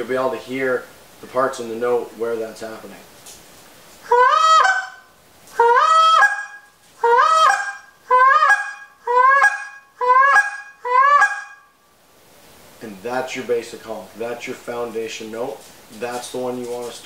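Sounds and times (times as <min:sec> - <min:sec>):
goose call honks: 0:04.1 - 0:11.6.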